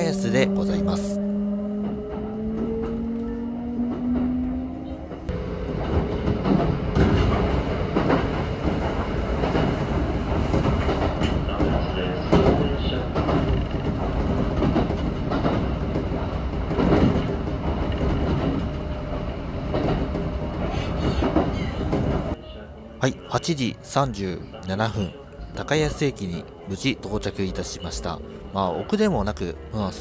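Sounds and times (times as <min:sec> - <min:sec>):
train running rumble: 0:00.0 - 0:22.4
wheels clacking over rail joints: 0:01.8 - 0:22.4.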